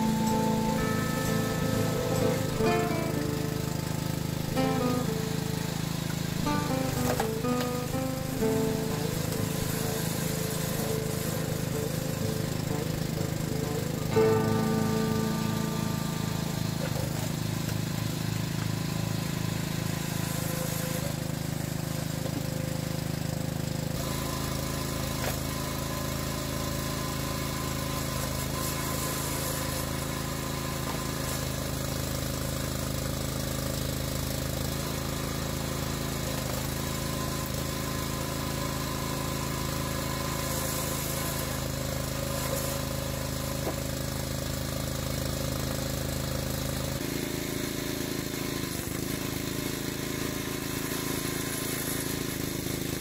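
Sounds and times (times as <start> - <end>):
log splitter engine running: 0.0 - 53.0.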